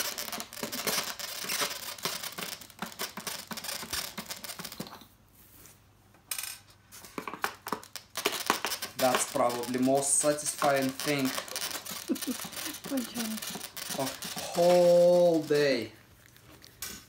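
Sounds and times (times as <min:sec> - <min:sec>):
screwdriver grinding in foam: 0:08.5 - 0:15.9.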